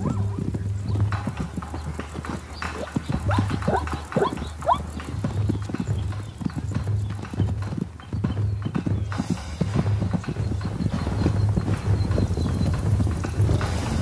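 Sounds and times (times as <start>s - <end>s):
hooves striking hard ground: 0.0s - 14.0s
zebra squealing calls: 2.6s - 5.0s.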